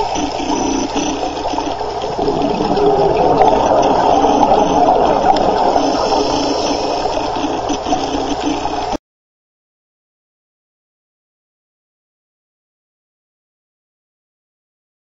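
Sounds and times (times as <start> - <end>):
underwater bubbles gurgling: 0.0 - 9.0.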